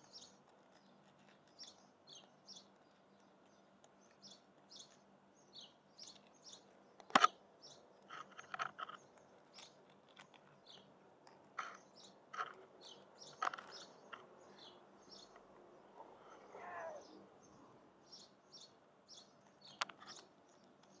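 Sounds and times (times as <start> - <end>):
cat crunching dry kibble: 0.0 - 4.7, 8.0 - 11.8
small birds chirping: 0.0 - 21.0.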